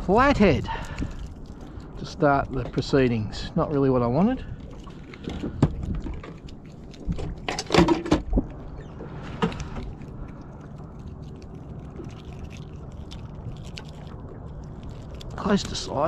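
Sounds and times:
water lapping against boat hull: 0:00.0 - 0:16.0
knocks and clatters: 0:07.2 - 0:08.5.

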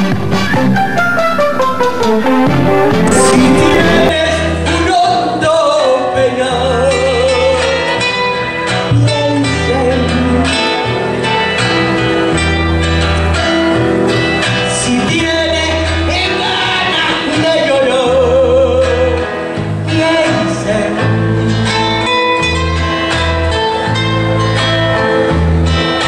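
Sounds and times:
band with bass and guitar: 0:00.0 - 0:26.0
woman singing: 0:19.9 - 0:21.0.

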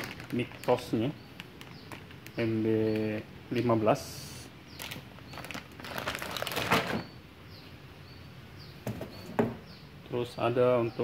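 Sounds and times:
plastic packaging crinkling: 0:00.0 - 0:02.6, 0:04.8 - 0:07.0.

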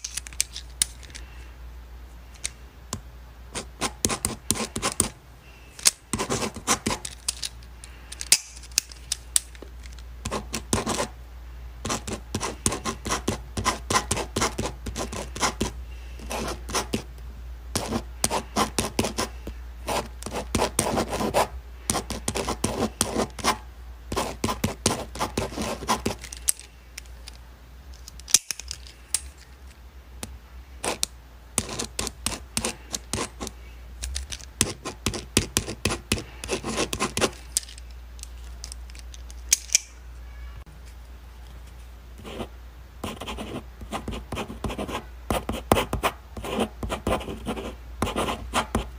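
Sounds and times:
low steady hum: 0:00.0 - 0:48.9
pen scratching on paper: 0:03.6 - 0:05.1, 0:06.1 - 0:07.0, 0:10.3 - 0:11.1, 0:11.9 - 0:17.1, 0:17.8 - 0:26.2, 0:31.6 - 0:33.5, 0:34.6 - 0:37.4, 0:42.2 - 0:48.9.

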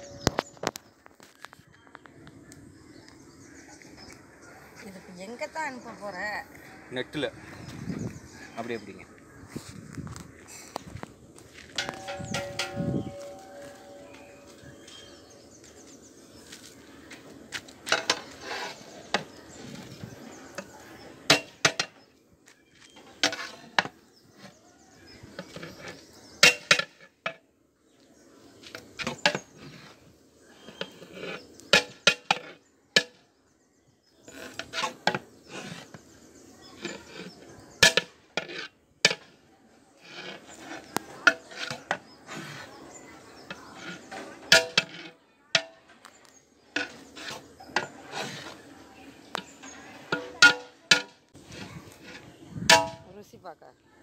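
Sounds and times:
metal ladle scraping through rice: 0:11.7 - 0:15.4, 0:17.8 - 0:21.9, 0:22.9 - 0:27.1, 0:28.6 - 0:32.6, 0:34.2 - 0:52.9
ladle clanking against metal pot: 0:11.8 - 0:13.6.

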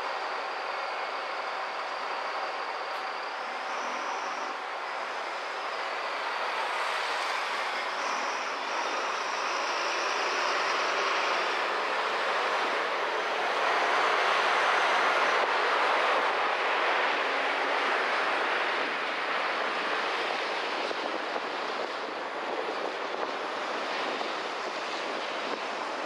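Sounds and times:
thin high whine: 0:00.0 - 0:17.2
street traffic engines and tyres: 0:00.0 - 0:26.0.

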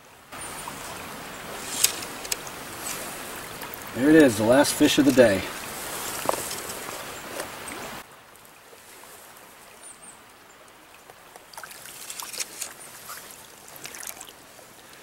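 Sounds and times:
stream water rushing and trickling: 0:00.0 - 0:15.0
small water splashes: 0:00.3 - 0:15.0.

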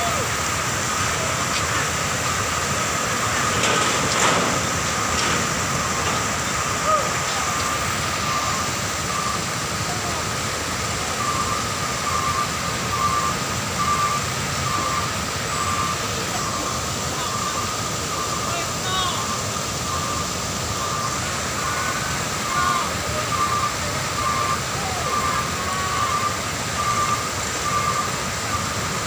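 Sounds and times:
water rushing down embankment: 0:00.0 - 0:29.0.

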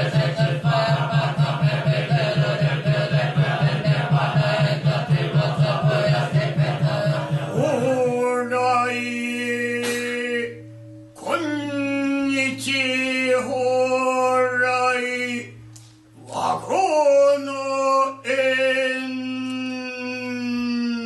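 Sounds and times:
wooden fish drum beats: 0:00.0 - 0:08.5
man chanting long held notes: 0:00.0 - 0:21.0
unison sutra chanting: 0:00.0 - 0:21.0.

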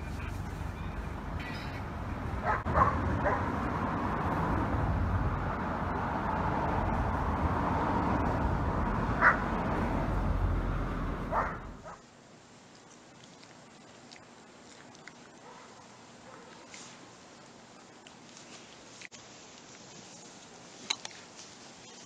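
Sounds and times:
steady outdoor rumble: 0:00.0 - 0:22.0
dog barking: 0:02.4 - 0:03.5, 0:09.2 - 0:09.5, 0:11.3 - 0:12.0, 0:15.4 - 0:16.7.

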